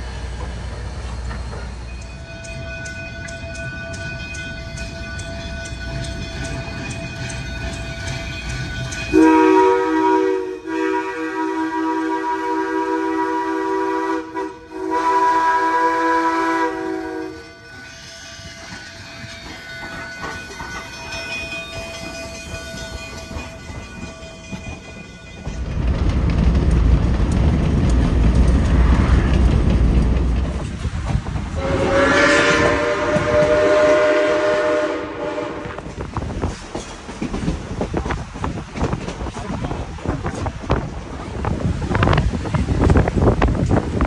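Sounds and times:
train rumbling on rails: 0.0s - 44.0s
train whistle chord: 9.0s - 20.9s, 31.6s - 35.8s.

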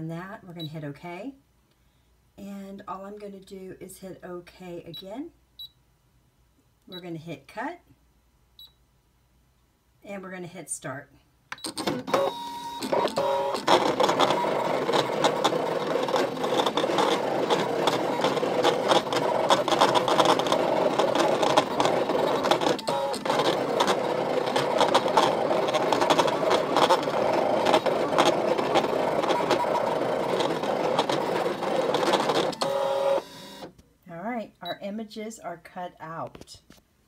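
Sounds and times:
cutting machine motors whirring: 11.8s - 33.7s.

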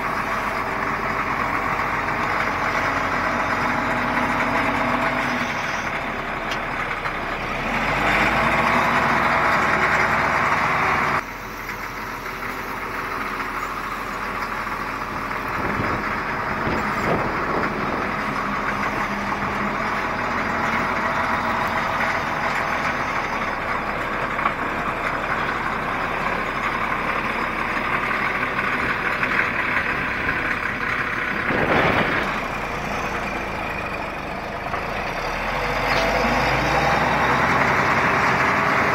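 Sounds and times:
diesel engine under load: 0.0s - 38.9s
grinding through gravel: 12.4s - 38.9s.

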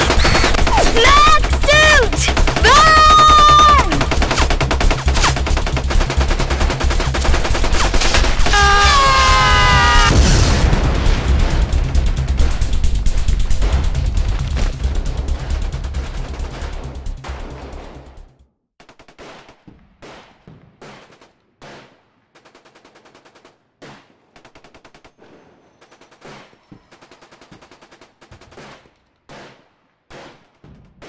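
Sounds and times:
machine-gun fire bursts: 0.0s - 12.0s
rumble: 9.2s - 18.2s.

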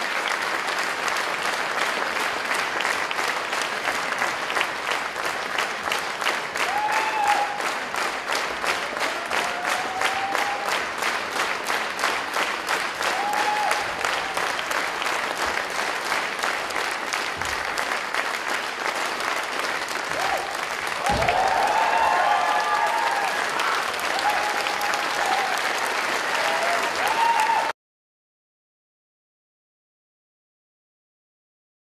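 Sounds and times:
audience applauding: 0.0s - 27.8s
audience cheering: 6.6s - 7.8s, 8.7s - 10.9s, 13.0s - 14.7s, 20.1s - 27.8s.

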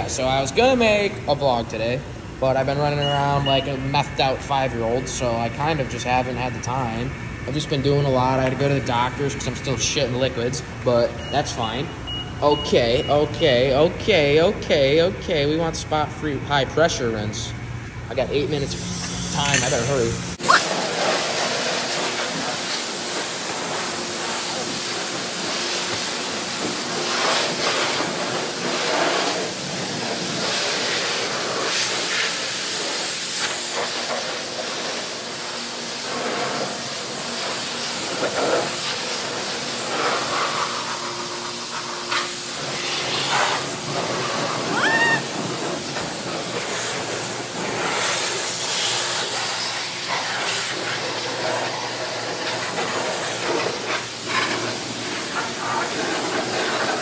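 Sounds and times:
high rising squeak: 20.4s - 20.8s
high-pressure water spray on car: 20.4s - 57.0s.

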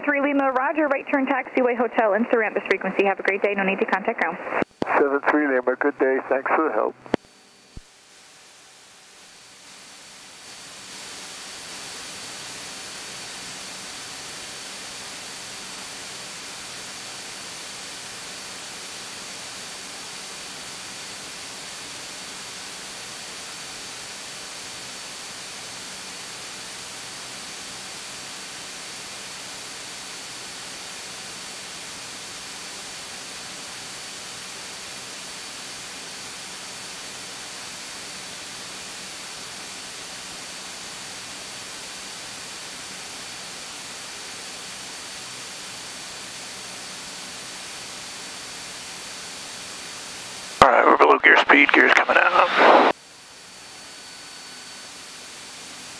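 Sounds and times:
airplane cabin engine and airflow rush: 50.6s - 55.9s.

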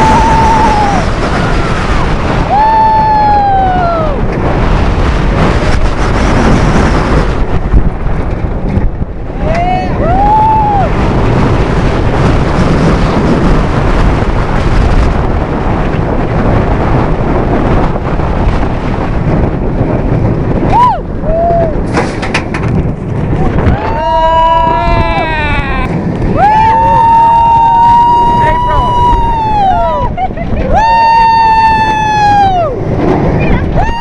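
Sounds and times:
riders screaming: 0.0s - 4.2s, 23.6s - 30.1s, 30.7s - 32.8s
roller coaster train rumble: 0.0s - 34.0s
wind rush on microphone: 0.0s - 34.0s.

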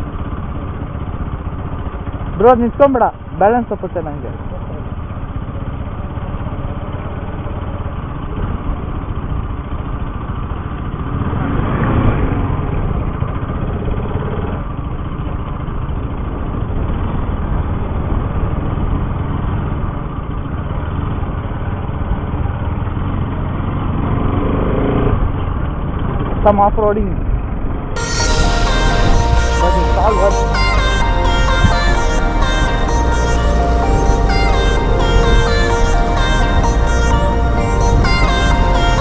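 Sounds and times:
motorcycle engine running: 0.0s - 26.6s.

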